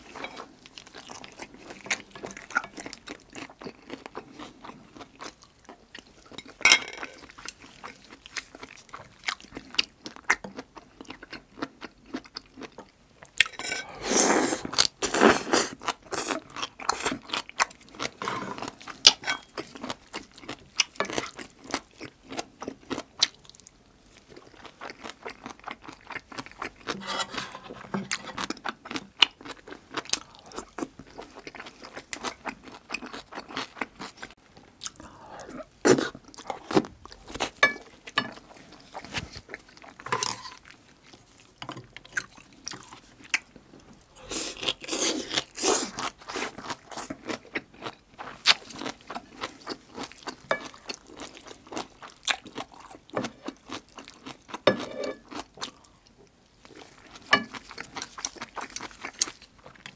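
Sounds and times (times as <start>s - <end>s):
chewing and smacking: 28.1s - 43.6s, 44.4s - 59.9s.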